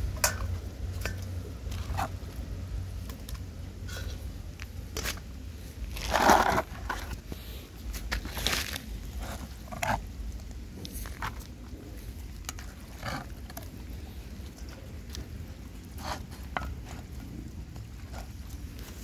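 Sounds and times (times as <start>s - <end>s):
dogs chewing and slurping: 8.2s - 19.0s.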